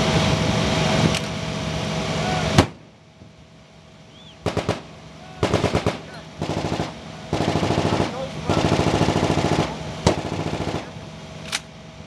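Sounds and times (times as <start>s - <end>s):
loud rushing noise with hum: 0.0s - 12.0s
machine-gun fire: 4.4s - 11.0s.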